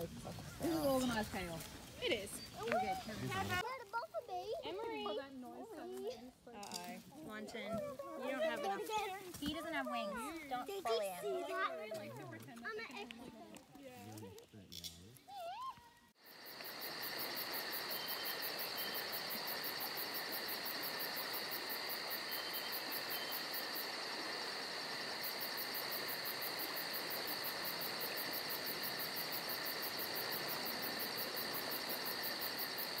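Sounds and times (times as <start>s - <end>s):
insects chirping: 0.0s - 3.6s, 16.2s - 33.0s.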